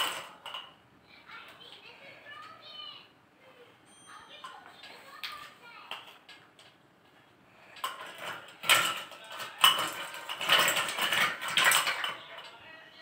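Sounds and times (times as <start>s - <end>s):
ice cubes clinking in glass jug: 7.8s - 12.5s.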